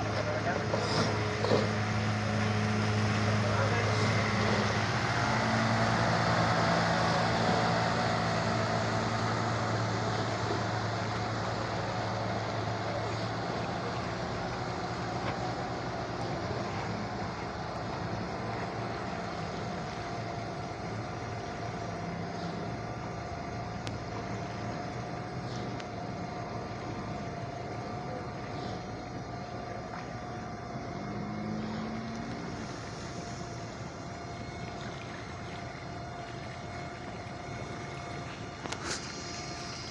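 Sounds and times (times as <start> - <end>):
boat engine running: 0.0 - 39.9
high whine: 0.0 - 39.9
water noise: 0.0 - 39.9.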